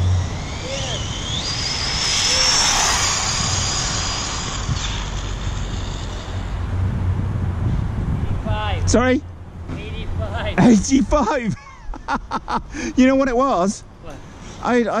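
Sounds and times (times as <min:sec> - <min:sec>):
electric motor whining: 0:00.0 - 0:07.1
tyre and air rush: 0:00.0 - 0:08.9.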